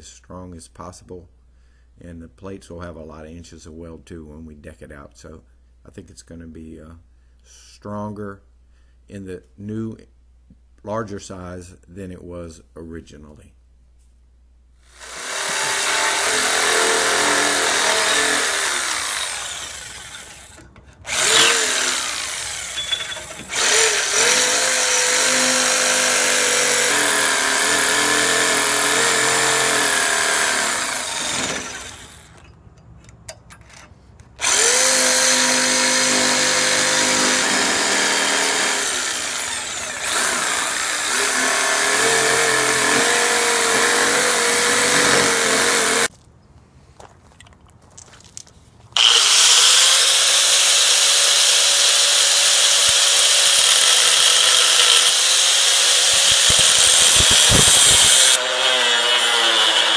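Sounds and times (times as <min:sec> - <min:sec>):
jigsaw cutting metal: 0:14.9 - 0:32.4, 0:34.4 - 0:46.1, 0:49.0 - 0:59.9.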